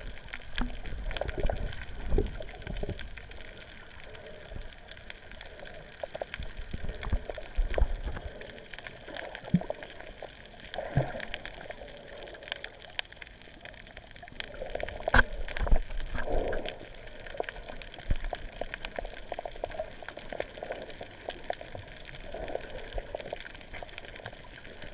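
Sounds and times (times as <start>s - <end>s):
underwater clicks: 0.0s - 3.4s, 14.4s - 21.7s
muffled underwater sloshing: 0.0s - 24.9s.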